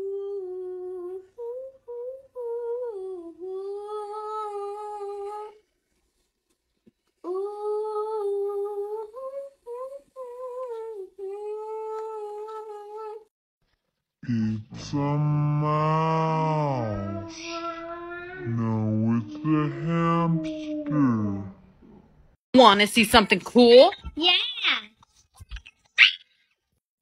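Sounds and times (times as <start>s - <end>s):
girl humming a melody: 0.0s - 5.6s, 7.2s - 13.3s, 15.8s - 21.5s.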